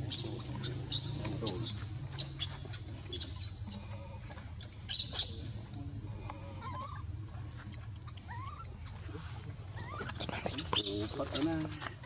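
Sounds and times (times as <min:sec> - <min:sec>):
infant monkey squealing: 0:00.0 - 0:04.0, 0:04.6 - 0:05.5, 0:06.5 - 0:07.1, 0:08.0 - 0:12.0.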